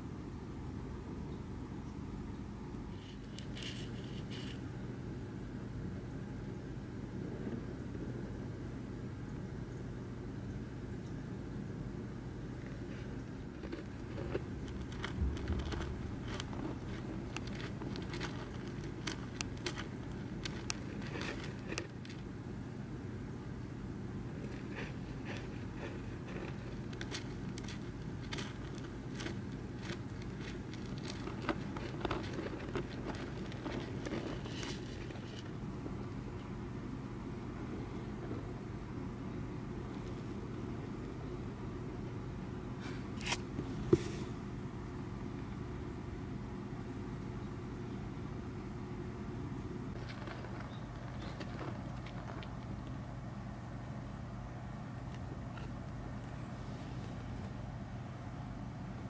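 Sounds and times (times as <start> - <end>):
steady low hum: 0.0 - 59.0
soil scratching and crackling: 12.7 - 22.3, 24.3 - 36.5, 49.9 - 53.1.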